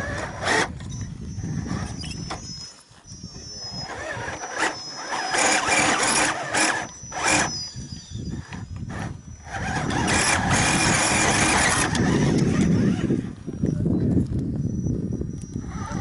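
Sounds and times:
electric motor whining: 0:00.0 - 0:16.0.

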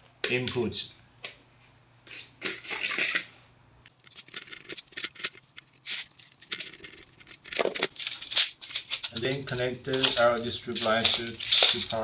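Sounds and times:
screwdriver clicking and scraping: 0:03.9 - 0:09.3
cable rubbing: 0:04.0 - 0:09.4.

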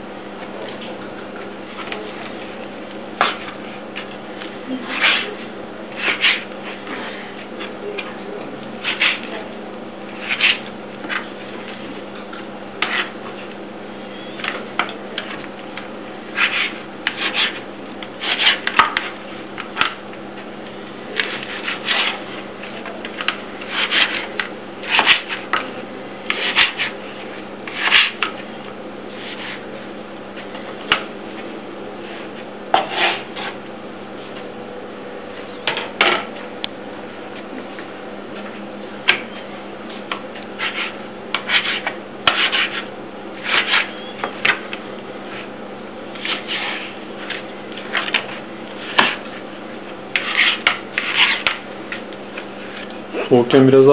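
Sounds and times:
steady low hum: 0:00.0 - 0:53.9
knife scraping through fish: 0:06.0 - 0:07.3, 0:16.4 - 0:17.6, 0:18.2 - 0:19.1, 0:21.2 - 0:22.2, 0:23.6 - 0:25.5, 0:26.3 - 0:27.0, 0:27.7 - 0:28.2, 0:32.8 - 0:33.6, 0:40.6 - 0:44.0, 0:46.2 - 0:47.4, 0:50.2 - 0:51.6.

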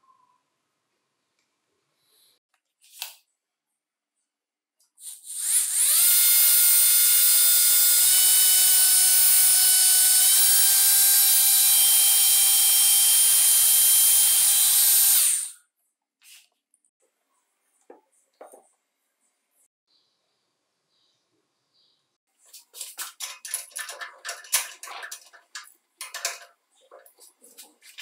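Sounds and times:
drill motor whining: 0:05.3 - 0:15.6.

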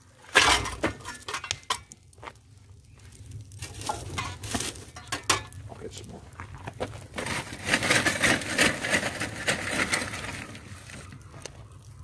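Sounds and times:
metal shovel crunching solid fuel: 0:00.1 - 0:02.0, 0:06.9 - 0:11.1.

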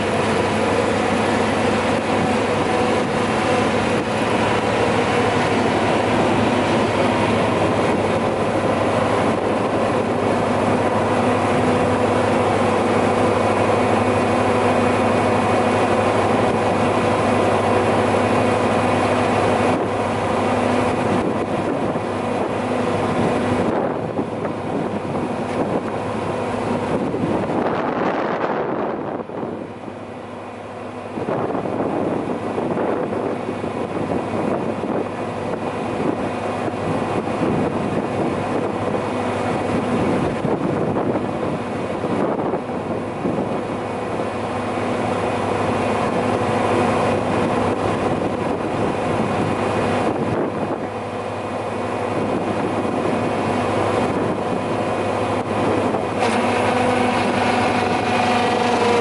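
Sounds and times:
press machine hum and whine: 0:00.0 - 0:59.0.

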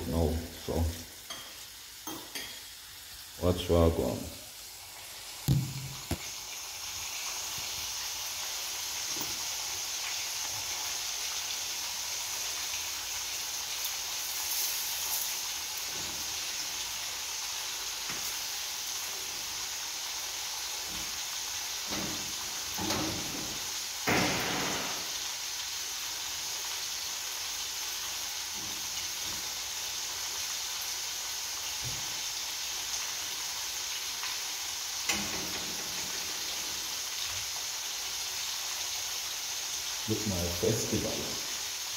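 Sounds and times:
hot oil sizzling in a pan: 0:00.0 - 0:41.9.

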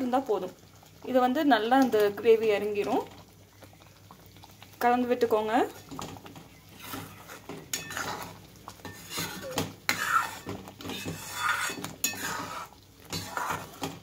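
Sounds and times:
metal spatula scraping a pan: 0:06.7 - 0:14.0.

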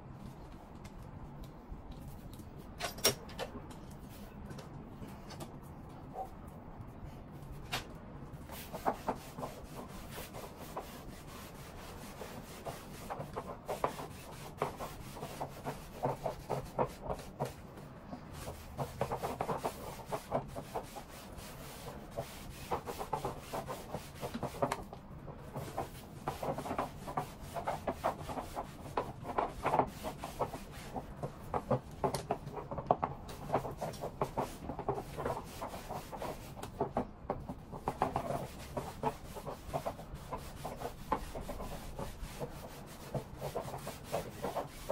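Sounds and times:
steamer head rubbing fabric: 0:18.2 - 0:32.0, 0:37.5 - 0:44.9.

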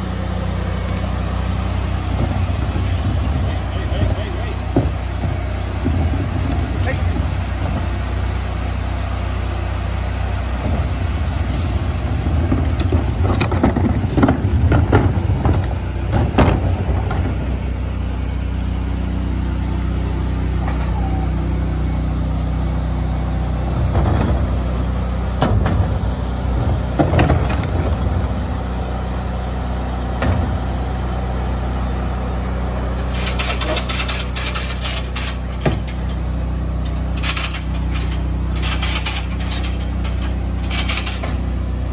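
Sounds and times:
engine low hum: 0:00.0 - 0:41.9
plastic bins knocking and clattering: 0:12.2 - 0:17.4.

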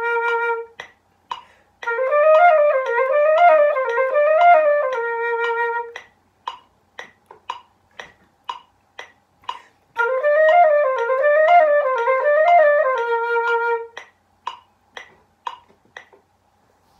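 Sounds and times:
concert flute playing: 0:00.0 - 0:00.9, 0:01.8 - 0:06.1, 0:10.0 - 0:14.1
steady click: 0:14.0 - 0:16.3.

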